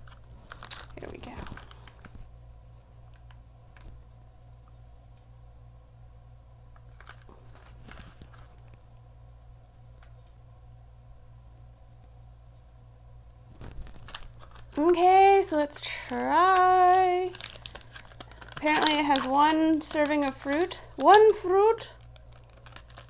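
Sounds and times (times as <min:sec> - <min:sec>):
steady low hum: 0:00.0 - 0:23.0
plastic tray clicks and crackles: 0:22.0 - 0:23.0.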